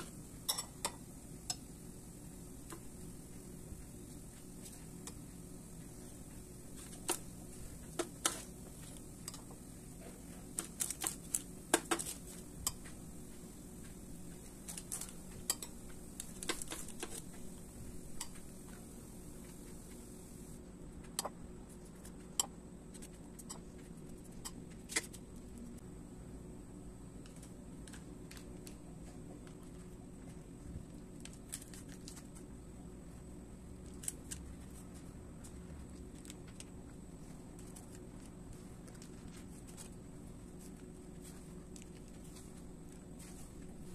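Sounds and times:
low steady hum: 0.0 - 43.9
metal spoon clinking: 0.4 - 1.6.

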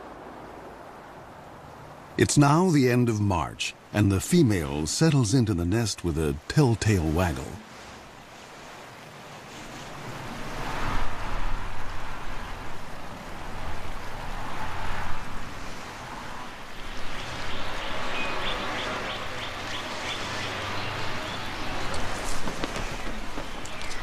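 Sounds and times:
wind gusting: 0.0 - 24.0.

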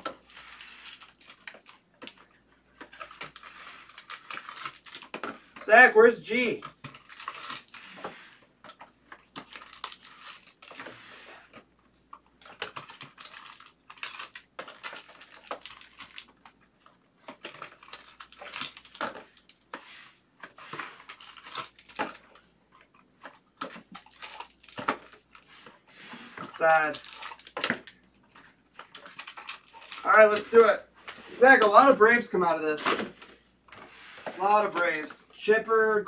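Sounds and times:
foil wrapper crinkling and tearing: 0.0 - 5.3, 6.3 - 8.4, 9.2 - 11.0, 12.4 - 16.6, 17.3 - 19.6, 20.5 - 25.5, 26.4 - 33.3.

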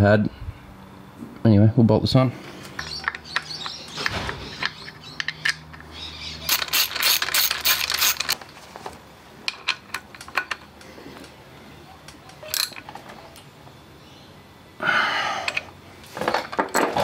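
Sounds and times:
hand tools clinking on metal: 4.5 - 8.4, 12.3 - 13.0
ratchet clicking: 6.4 - 8.4.

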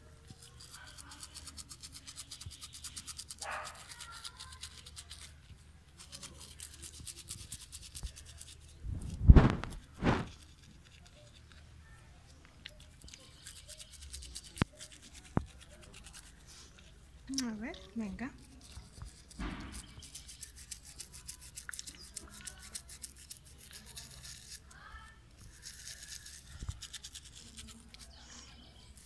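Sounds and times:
toothbrush scrubbing teeth: 0.0 - 8.8, 9.7 - 11.6, 12.6 - 29.0
short loud rushes of noise: 8.9 - 10.3.

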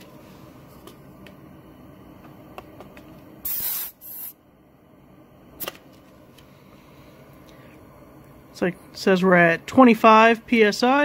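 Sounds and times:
air hissing from tire valve: 3.4 - 4.4.

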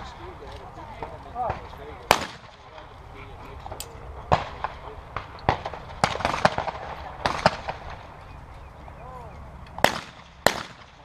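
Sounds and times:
shotgun shots: 1.4 - 2.8, 4.3 - 8.0, 9.8 - 11.0
gun clicks: 3.6 - 4.0.

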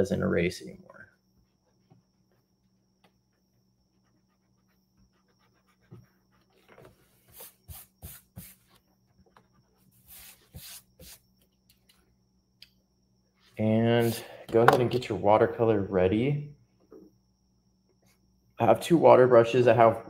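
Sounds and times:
eraser rubbing on paper: 4.0 - 8.8, 9.8 - 11.2.

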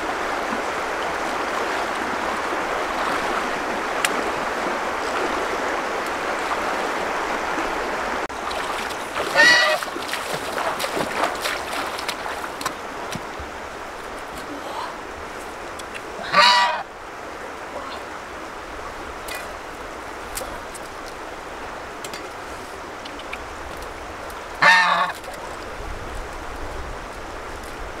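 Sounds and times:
goose honking: 9.3 - 9.9, 16.2 - 16.8, 24.6 - 25.2.

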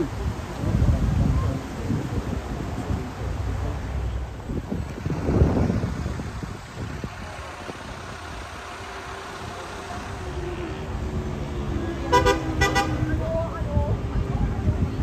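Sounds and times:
car engine running: 2.4 - 12.9.

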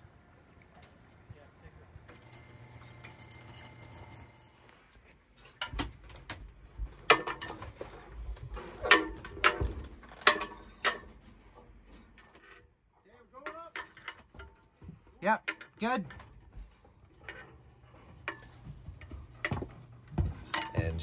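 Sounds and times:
metallic clanks and knocks: 5.4 - 12.7, 13.4 - 21.0.

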